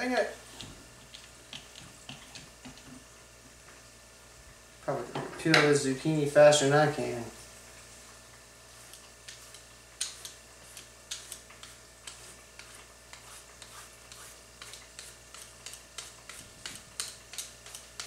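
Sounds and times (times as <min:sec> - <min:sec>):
peeler scraping vegetable skin: 0:08.9 - 0:18.0.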